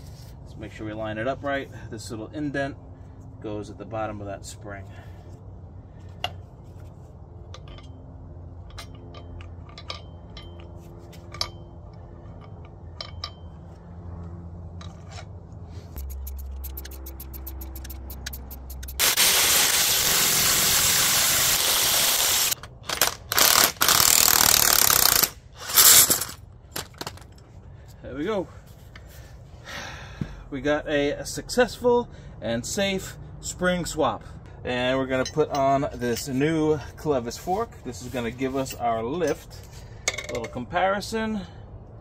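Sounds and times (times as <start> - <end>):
metal parts clinking: 8.6 - 13.7, 16.0 - 20.2, 21.6 - 27.4
rapid ticking: 16.0 - 19.2
impact wrench hammering: 16.0 - 26.9.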